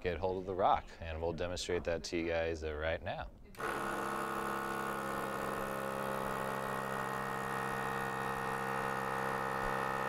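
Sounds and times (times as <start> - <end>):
electric air pump humming: 3.6 - 10.0.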